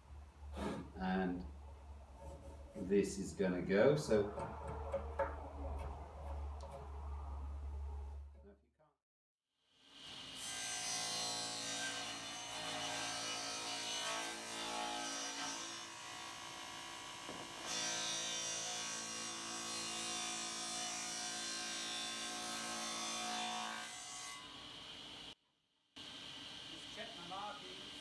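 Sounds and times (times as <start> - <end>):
table saw cutting wood: 10.0 - 25.3.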